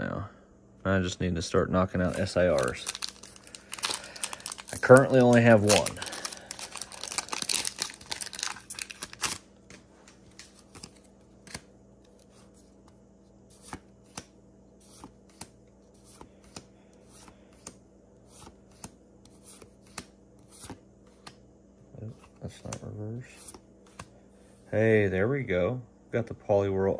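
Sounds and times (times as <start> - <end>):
foil wrapper crinkling and tearing: 2.0 - 9.4.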